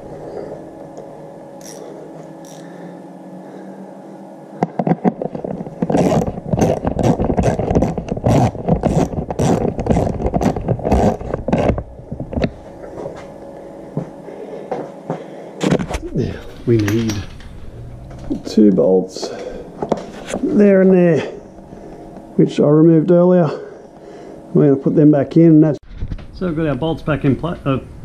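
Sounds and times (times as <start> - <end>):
socket ratchet clicking: 2.4 - 2.6.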